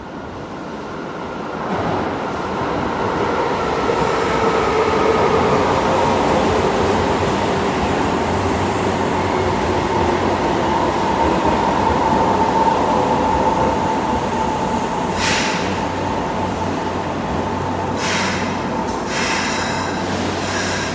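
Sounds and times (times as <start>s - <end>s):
brief high hiss: 18.0s - 20.9s.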